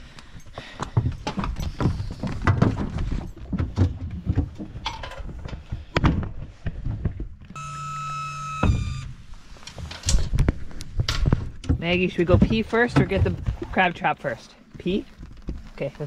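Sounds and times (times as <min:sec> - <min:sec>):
steady pitched tone: 0:07.6 - 0:09.3
knocks and thuds in dinghy: 0:11.3 - 0:13.8.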